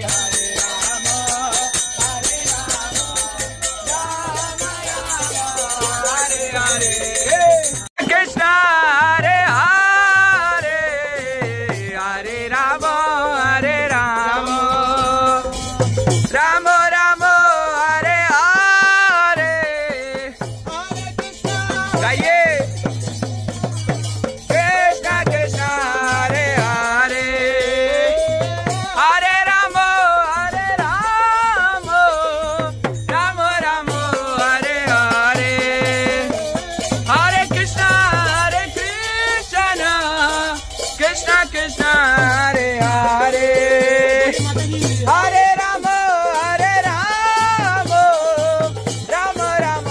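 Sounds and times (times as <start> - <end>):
group singing: 0.0 - 23.0, 24.3 - 49.9
hand percussion: 0.0 - 49.9
hand drum beating: 18.0 - 27.2.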